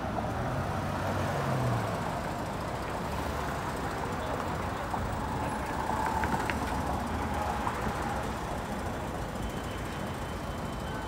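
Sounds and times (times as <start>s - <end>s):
passing vehicles rumble: 0.0s - 11.0s.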